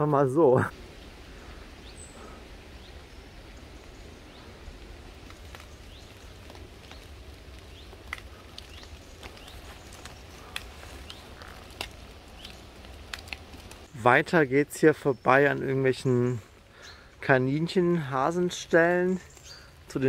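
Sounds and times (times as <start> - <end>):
small birds chirping: 0.9 - 20.0
footsteps through undergrowth: 3.8 - 14.0.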